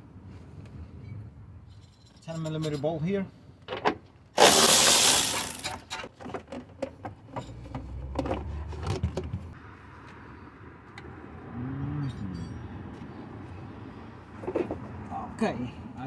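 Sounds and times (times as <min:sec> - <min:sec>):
cordless ratchet spinning: 0:04.4 - 0:05.8.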